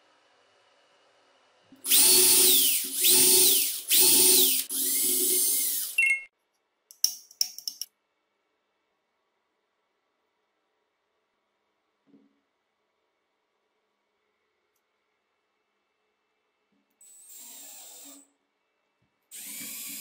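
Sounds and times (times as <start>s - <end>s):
cordless drill driving screw into wood: 1.9s - 6.0s
sharp clicks: 6.9s - 7.9s.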